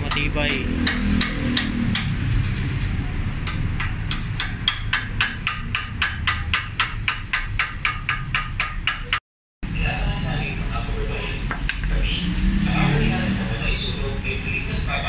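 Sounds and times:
hammer tapping on metal tube: 0.0s - 2.6s, 3.4s - 9.2s.

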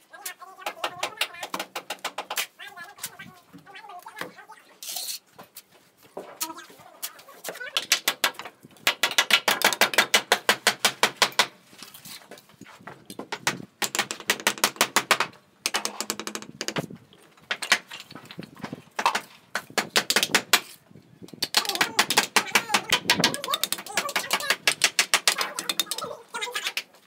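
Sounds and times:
trowel scraping and tapping brick: 19.0s - 26.1s.

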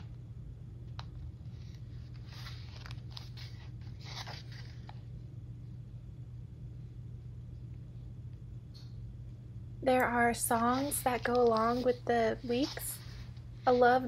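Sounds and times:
low steady hum: 0.0s - 14.0s
paper pages rustling: 1.4s - 5.0s, 10.5s - 14.0s.

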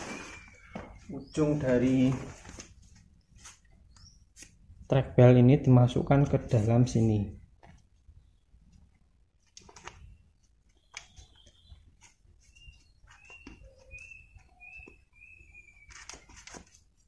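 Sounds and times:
strap webbing clicks and rustles: 9.4s - 15.0s, 15.7s - 17.0s.

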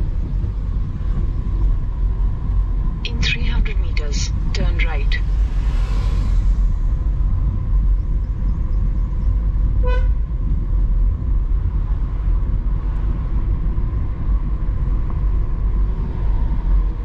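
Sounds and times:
car engine and road rumble: 0.0s - 17.0s
vehicle horn toot: 9.8s - 10.2s.

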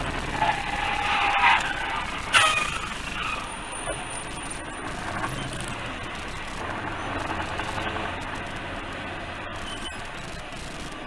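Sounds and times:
road noise: 0.0s - 11.0s
vehicle engine hum: 0.0s - 11.0s.

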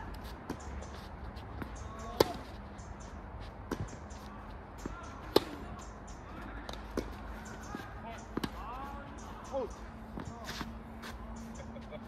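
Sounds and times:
tennis ball bouncing: 1.5s - 2.6s, 4.8s - 5.8s, 6.6s - 8.8s
tennis ball hit by racket: 5.2s - 5.7s.

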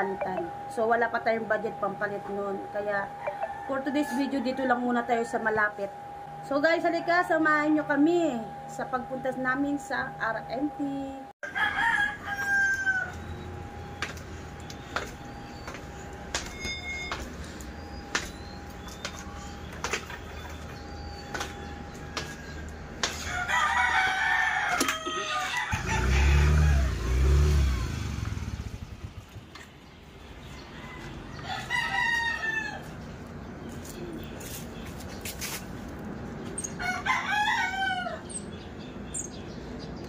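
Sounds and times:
roosters crowing: 3.2s - 5.5s, 11.4s - 15.8s, 20.8s - 28.3s, 30.5s - 33.2s, 36.6s - 38.5s
sharp footstep-like taps: 18.1s - 20.6s, 21.3s - 23.3s.

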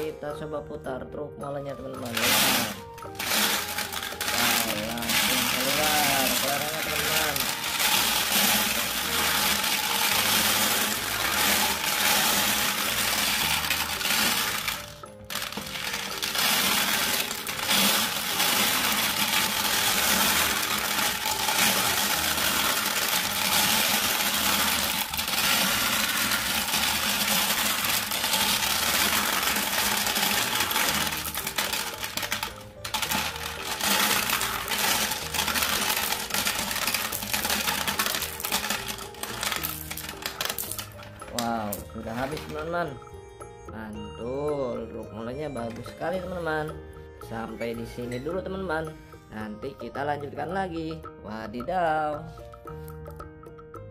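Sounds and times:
background music: 0.0s - 53.9s
marbles clattering in plastic drum: 1.8s - 43.0s
marbles rolling down plastic chute: 1.8s - 43.0s.

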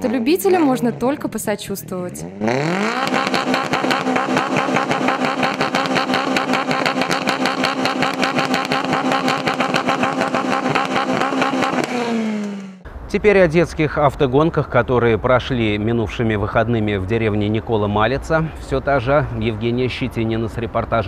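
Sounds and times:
car engine revving loudly: 2.2s - 12.8s.

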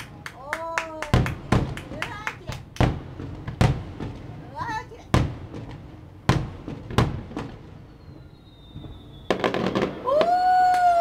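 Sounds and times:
crackling fireworks pops: 0.0s - 11.0s
fireworks bursting with bangs: 0.0s - 11.0s
faint high falling whistle: 7.9s - 11.0s.

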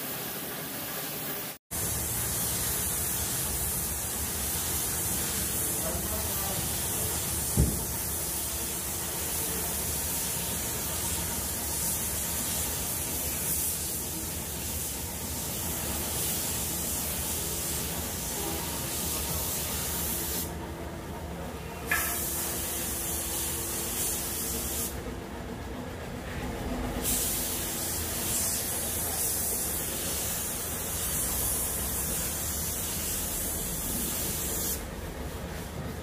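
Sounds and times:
paint spray gun hissing: 1.8s - 20.5s, 27.0s - 34.8s
spray gun knock: 7.4s - 8.1s, 21.9s - 22.5s.

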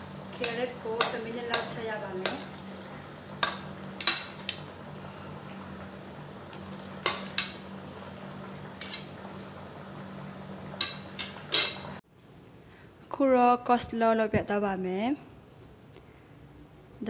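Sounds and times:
steady low hum: 0.0s - 13.4s.

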